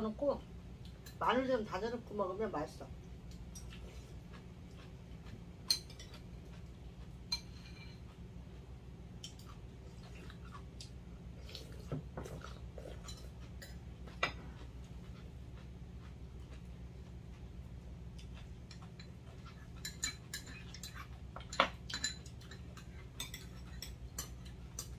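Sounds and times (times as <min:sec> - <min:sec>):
steady low hum: 0:00.0 - 0:24.9
utensils clinking on ceramic bowls: 0:05.7 - 0:06.2, 0:19.8 - 0:24.9.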